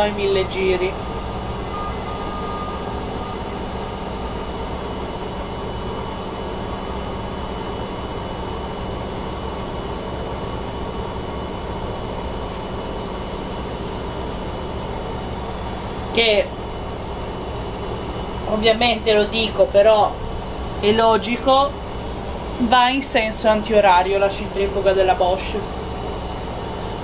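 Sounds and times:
washing machine spinning: 0:00.0 - 0:27.0.

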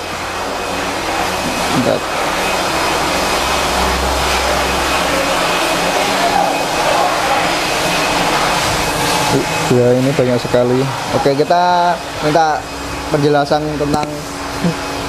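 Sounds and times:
low hum: 0:00.0 - 0:15.0
machine rushing air: 0:00.0 - 0:15.0.

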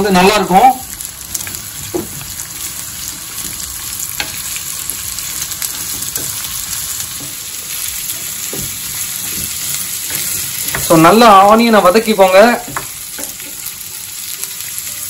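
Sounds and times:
onions sizzling in oil: 0:00.0 - 0:15.0
wooden spatula knocking on pan: 0:01.8 - 0:02.3, 0:03.1 - 0:07.4, 0:08.1 - 0:10.9, 0:12.6 - 0:13.7.

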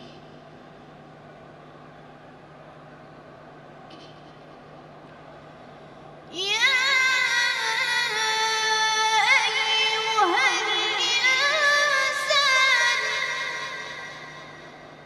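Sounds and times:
child reciting in melismatic chant: 0:06.3 - 0:14.8.

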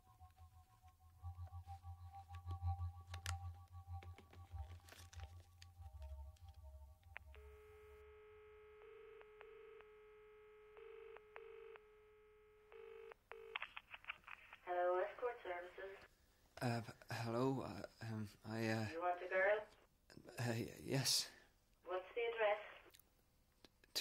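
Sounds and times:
telephone dial tone: 0:02.4 - 0:12.0, 0:12.6 - 0:13.7.

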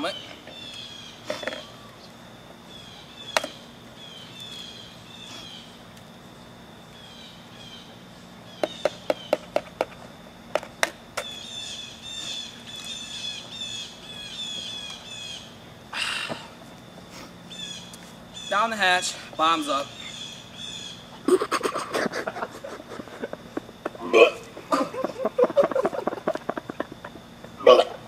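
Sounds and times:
small birds chirping: 0:00.0 - 0:09.6, 0:11.2 - 0:15.7, 0:17.5 - 0:21.1.

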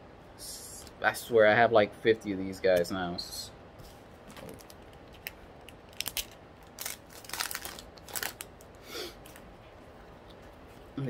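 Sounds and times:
foil wrapper crinkling: 0:04.3 - 0:08.7.

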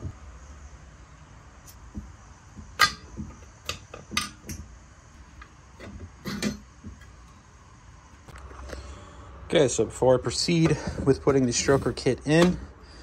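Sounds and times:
metal engine parts clinking: 0:02.6 - 0:07.1.

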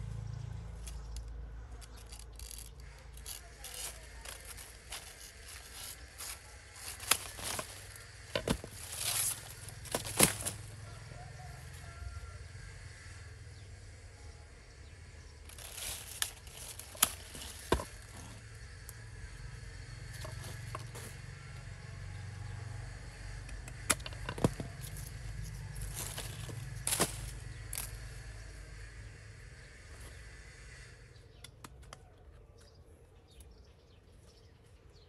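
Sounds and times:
steady low hum: 0:00.0 - 0:31.6
pruning shears snipping: 0:00.7 - 0:10.7, 0:15.5 - 0:19.0, 0:23.4 - 0:28.3
leaves rustling: 0:02.1 - 0:10.9, 0:15.4 - 0:18.4, 0:24.4 - 0:28.4.

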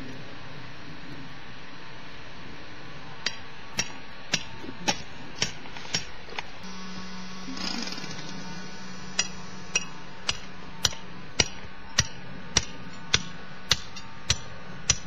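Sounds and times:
low hum: 0:00.0 - 0:15.0
hammer striking wood: 0:09.2 - 0:15.0.

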